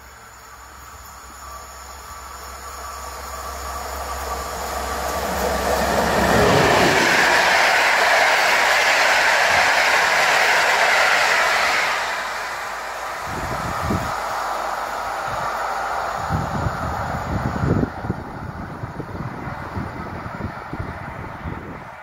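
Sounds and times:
train passing at speed: 0.0s - 22.0s.

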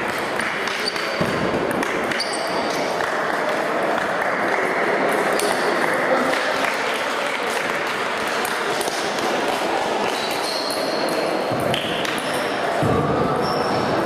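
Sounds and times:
hubbub of sports hall: 0.0s - 14.0s.

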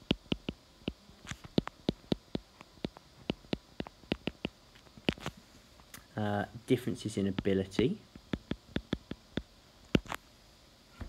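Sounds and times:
stylus clicking on tablet screen: 0.0s - 5.3s, 8.2s - 10.2s.

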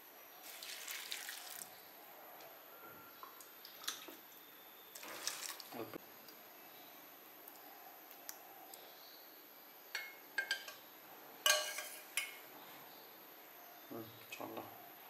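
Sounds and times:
spoon clinking against bowl: 11.4s - 12.4s.

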